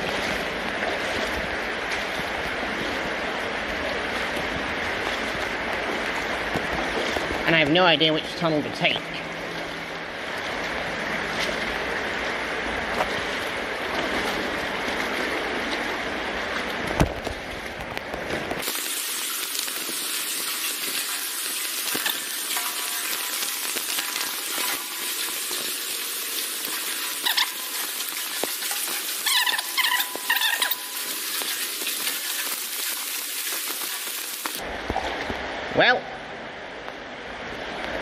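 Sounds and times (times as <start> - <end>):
water rushing through culvert: 0.0 - 38.0.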